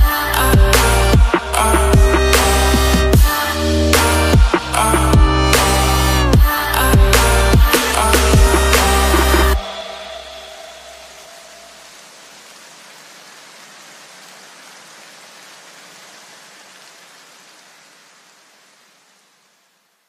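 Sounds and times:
white noise hiss: 0:05.6 - 0:20.0.

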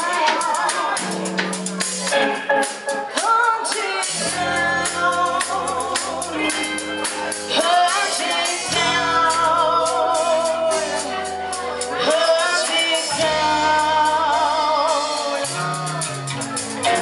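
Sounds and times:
woman singing: 0:00.0 - 0:01.8, 0:03.1 - 0:15.6
drums: 0:00.0 - 0:17.0
electric guitars: 0:00.0 - 0:17.0
bass notes: 0:04.1 - 0:17.0.

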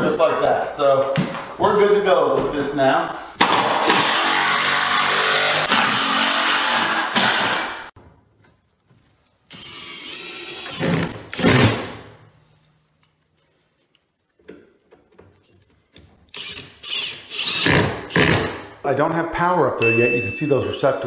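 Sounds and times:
cordless drill driving screws: 0:09.5 - 0:11.7, 0:16.3 - 0:18.5.

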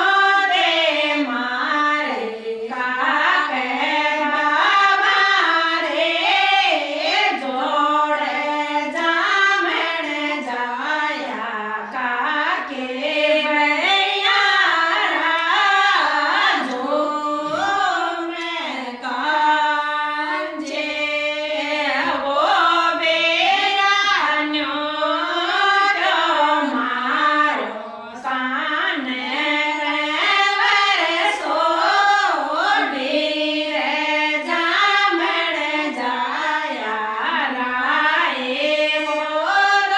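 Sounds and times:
women singing a folk song: 0:00.0 - 0:39.9.

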